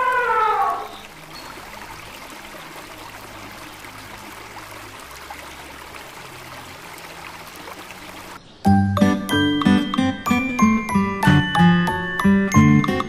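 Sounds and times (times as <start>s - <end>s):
running water rushing: 0.0s - 8.5s.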